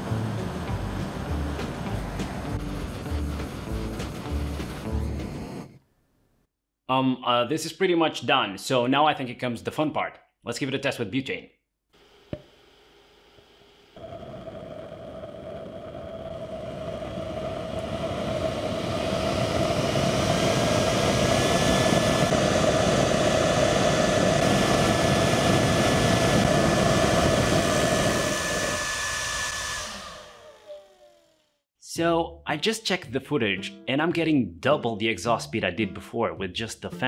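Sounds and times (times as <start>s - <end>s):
fan whirring whine: 0.0s - 5.8s, 13.9s - 31.4s
rush of air and flame: 0.0s - 5.8s, 14.0s - 30.5s.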